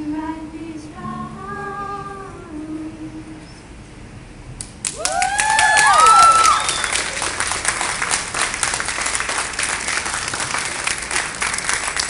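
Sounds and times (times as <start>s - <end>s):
crowd clapping: 4.8s - 12.0s
crowd cheering: 4.9s - 12.0s.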